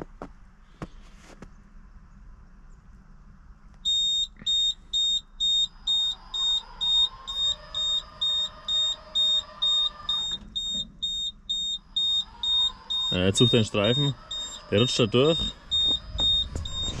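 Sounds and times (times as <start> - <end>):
faint whine: 0.0 - 17.0
electronic warning beeper: 3.9 - 17.0.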